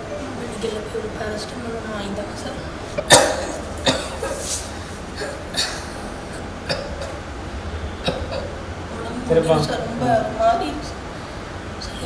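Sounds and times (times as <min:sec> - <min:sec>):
man coughing: 0:03.0 - 0:04.5, 0:05.2 - 0:07.2.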